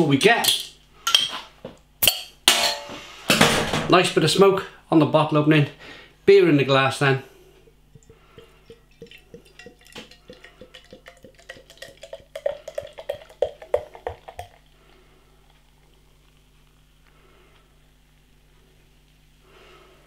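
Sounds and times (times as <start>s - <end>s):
beer glugging from a bottle: 7.6s - 16.1s
liquid pouring into a glass: 7.9s - 16.0s.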